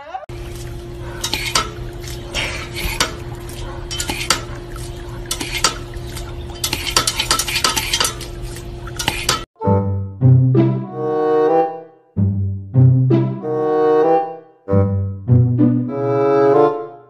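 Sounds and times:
steady low hum: 0.3 - 9.4
dog lapping: 0.3 - 9.5
water spraying and splashing: 0.3 - 9.5
music: 9.6 - 17.0.

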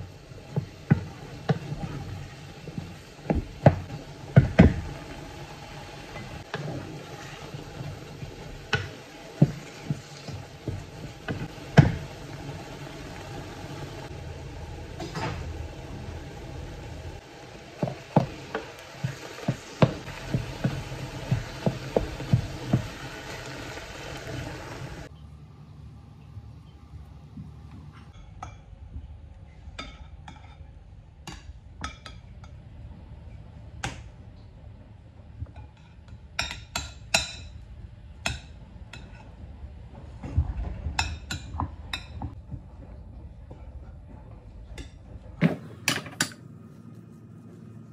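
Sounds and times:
meat sizzling in a saucepan: 0.0 - 25.1.

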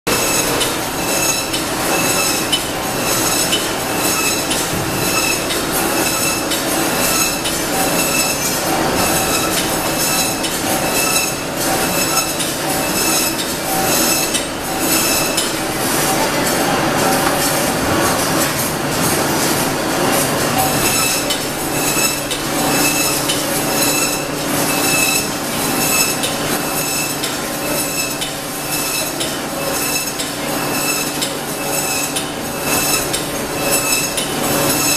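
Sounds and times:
metallic clinks and squeals: 0.1 - 15.4
conveyor machinery din: 0.1 - 34.9.

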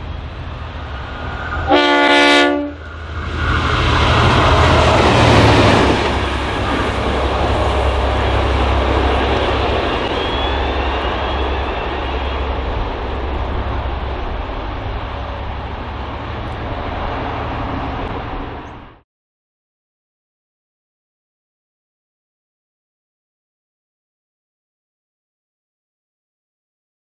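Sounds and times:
diesel locomotive engine drone: 0.0 - 19.0.

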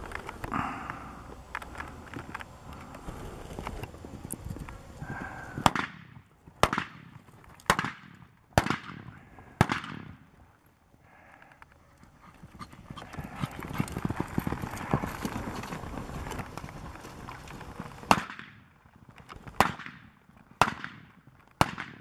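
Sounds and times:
horse hoofbeats in dirt: 1.8 - 21.8
gunshots: 5.6 - 10.2, 18.1 - 18.6, 19.6 - 22.0.

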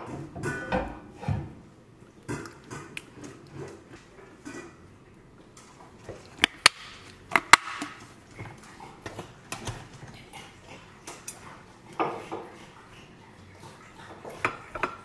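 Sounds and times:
container lid clicks: 6.4 - 7.9.

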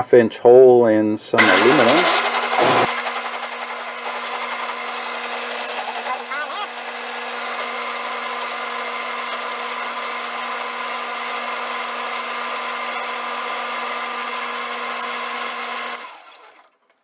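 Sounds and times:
drill bit cutting hiss: 1.4 - 7.8
metal lathe whine: 1.4 - 16.7.

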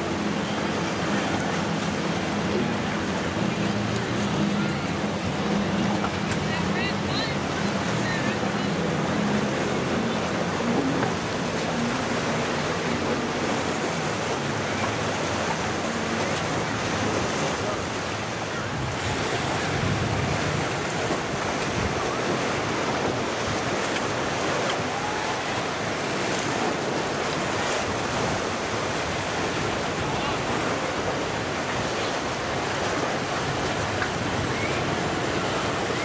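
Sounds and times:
waves rushing: 0.0 - 36.0
wind on microphone: 18.5 - 23.9.

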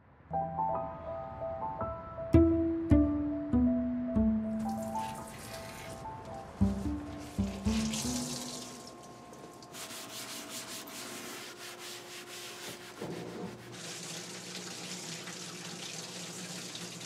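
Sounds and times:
held notes: 2.3 - 9.3
running water hiss: 4.7 - 9.2
steady rubbing noise: 9.8 - 13.8.

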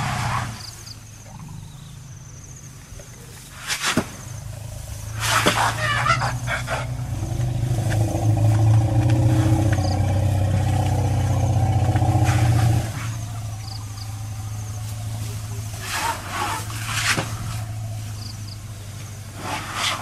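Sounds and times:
vehicle engine idling: 4.2 - 19.8.

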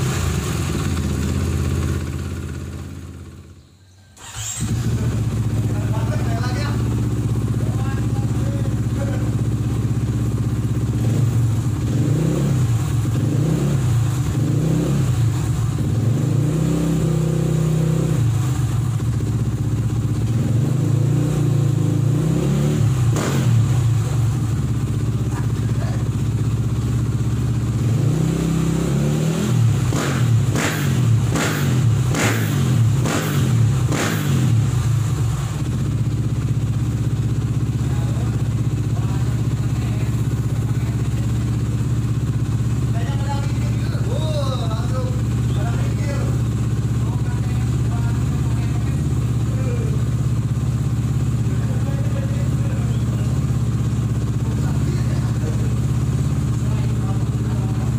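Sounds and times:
motorcycle engine revving: 0.0 - 57.9
sharp exhaust blasts: 27.7 - 36.0
exhaust crack: 29.4 - 57.9.

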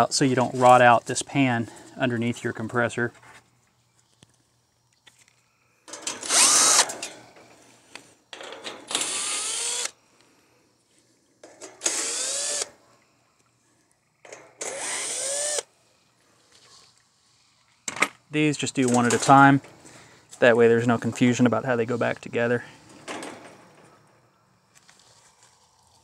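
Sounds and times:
cordless drill whining: 6.2 - 6.9, 8.9 - 10.0, 11.8 - 12.7, 14.6 - 15.7.

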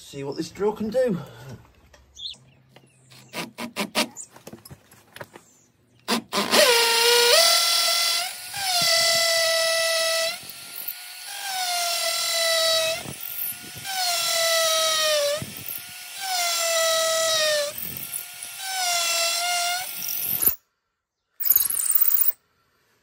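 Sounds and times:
drill drilling into brick: 6.1 - 20.6, 21.4 - 22.4.

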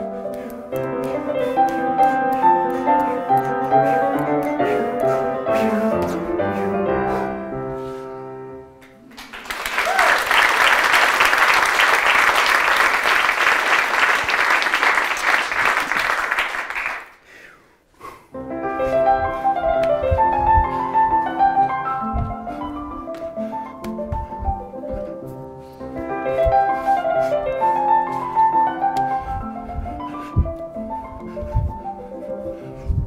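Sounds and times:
audience applauding: 8.9 - 17.2.

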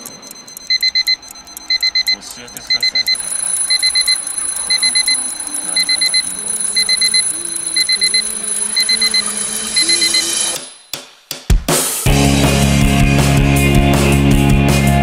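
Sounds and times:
alarm clock beeping: 0.0 - 10.9.

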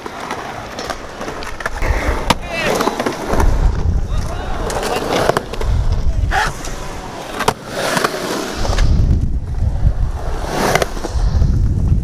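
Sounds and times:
skateboard wheels rolling on concrete: 0.0 - 12.0
skateboard clacking on concrete: 4.2 - 8.2.

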